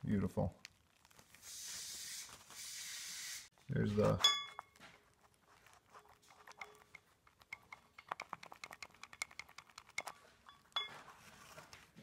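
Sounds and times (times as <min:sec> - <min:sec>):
metallic clicking and tapping: 0:06.3 - 0:10.9.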